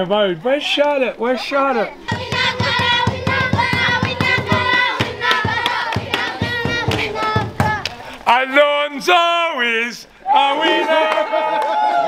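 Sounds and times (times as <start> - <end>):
children singing together: 2.0 - 8.1
children clapping a steady beat: 2.1 - 8.1.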